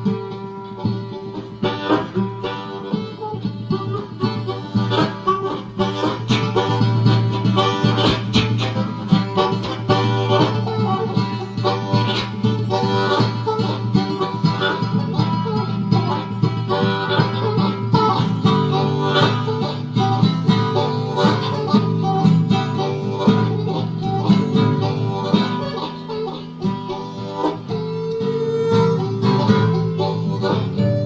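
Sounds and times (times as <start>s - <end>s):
bluegrass band playing: 0.0s - 31.0s.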